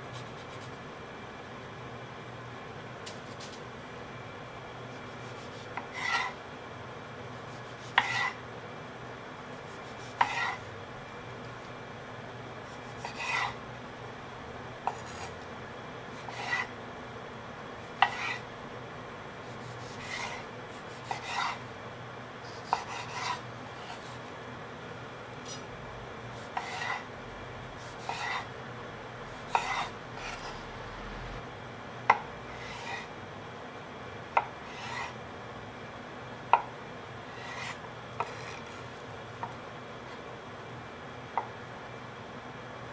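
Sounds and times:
knife slicing tomato: 7.5 - 8.4, 9.5 - 10.7, 12.6 - 13.6, 14.9 - 15.3, 16.2 - 16.7, 17.8 - 18.4, 19.4 - 21.6, 22.4 - 24.3, 26.4 - 27.1, 27.8 - 28.5, 29.3 - 30.6, 37.3 - 39.0.

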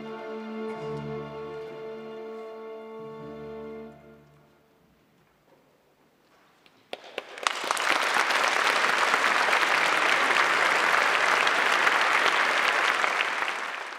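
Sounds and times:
audience applause: 6.9 - 13.9.

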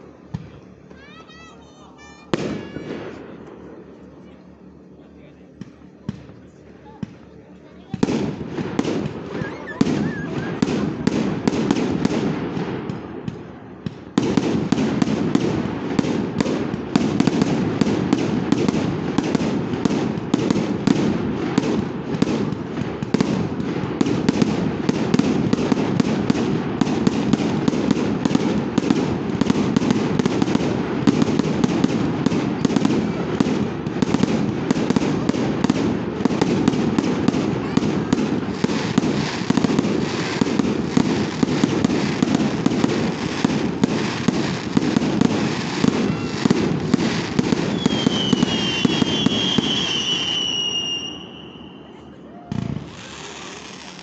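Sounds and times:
fireworks bangs and crackles: 0.0 - 54.0
rising firework whistle: 9.0 - 11.8, 45.6 - 54.0.

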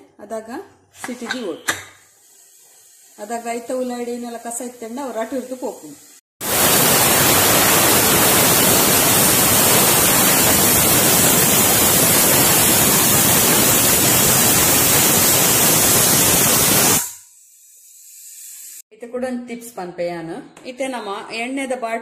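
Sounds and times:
pressure cooker steam hiss: 2.0 - 18.8.

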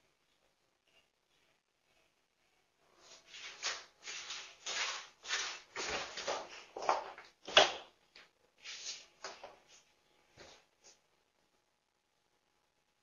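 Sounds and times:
rustling scuffing noises: 3.0 - 7.9, 8.6 - 11.0.

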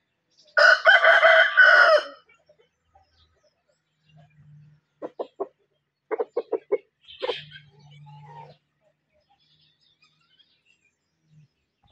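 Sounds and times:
rooster clucking: 5.0 - 8.5.

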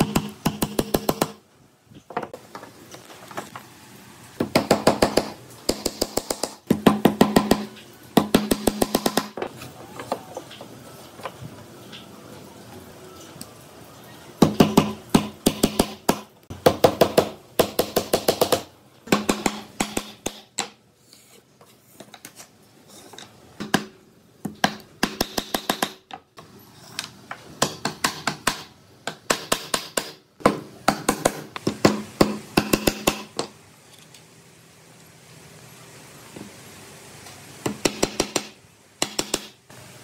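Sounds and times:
hammer striking nails: 0.0 - 1.4, 4.4 - 9.5, 14.4 - 20.7, 24.5 - 26.1, 27.6 - 33.5, 37.6 - 39.6.

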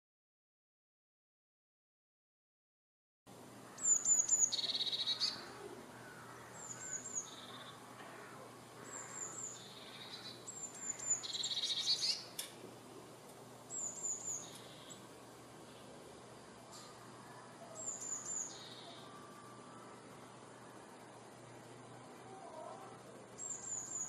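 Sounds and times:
bird singing: 3.6 - 12.4, 13.6 - 15.9, 16.7 - 24.0.

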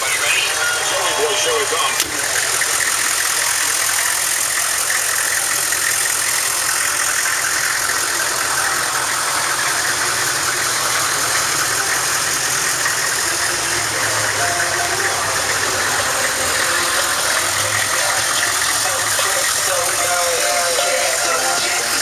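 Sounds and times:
engine idling: 0.0 - 22.0.

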